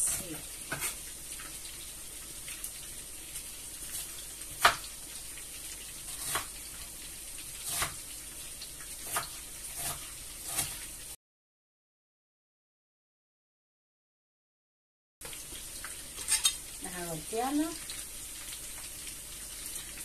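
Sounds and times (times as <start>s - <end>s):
food sizzling in hot oil: 0.0s - 11.2s, 15.2s - 20.0s.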